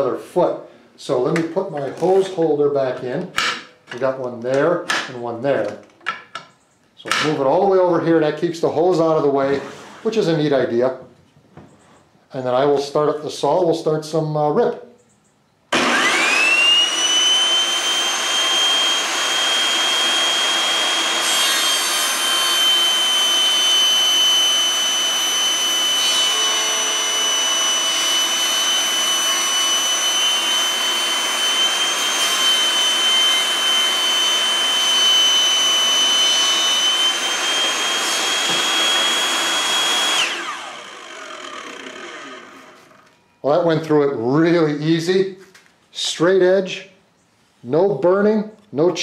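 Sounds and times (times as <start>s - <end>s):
saw winding down: 15.7s - 43.2s
table saw high whine: 15.7s - 43.8s.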